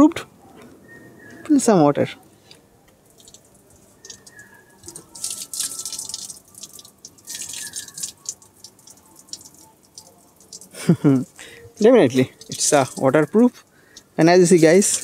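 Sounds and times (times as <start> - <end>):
water dripping: 2.8 - 15.0
water splashing on foil: 3.0 - 11.5, 12.1 - 15.0.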